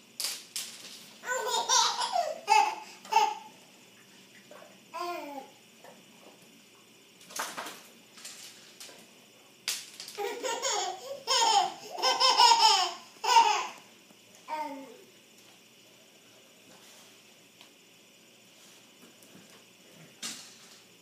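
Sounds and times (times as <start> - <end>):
toddler laughing and squealing: 1.2 - 3.5, 10.2 - 13.8.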